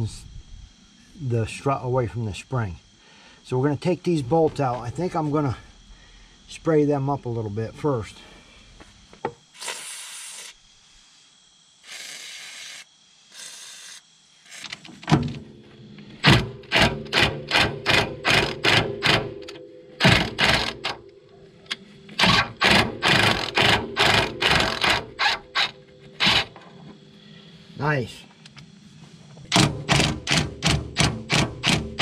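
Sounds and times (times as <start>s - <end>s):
aerosol spray can hissing: 9.6s - 10.7s, 11.8s - 14.7s
ringing tone: 18.9s - 22.2s.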